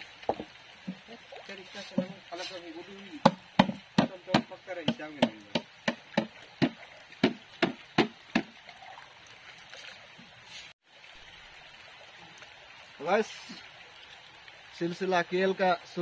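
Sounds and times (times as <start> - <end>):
stream water running: 0.0 - 16.0
sharp hard knocks: 3.2 - 8.5.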